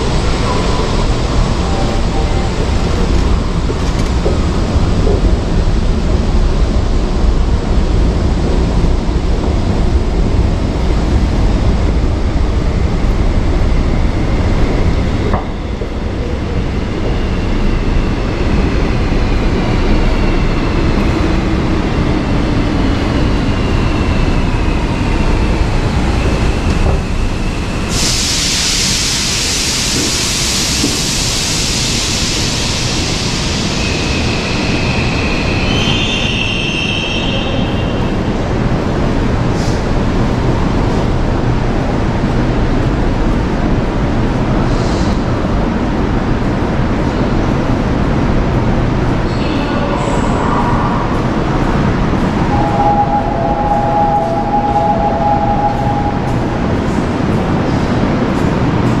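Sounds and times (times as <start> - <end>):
train rumble: 0.0 - 59.0
loud hiss: 27.7 - 35.2
high brake squeal: 32.0 - 38.2.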